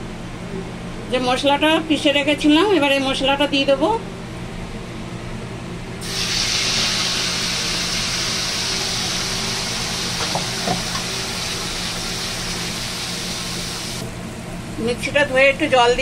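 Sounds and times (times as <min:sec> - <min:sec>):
paste sizzling in hot oil: 0:06.0 - 0:14.0.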